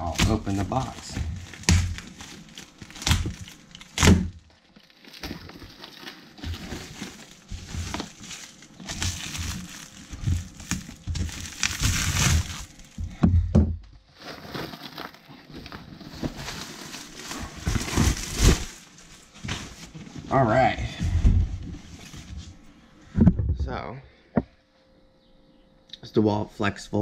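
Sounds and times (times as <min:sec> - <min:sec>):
plastic bag crinkling: 0:00.0 - 0:13.0, 0:14.1 - 0:19.4.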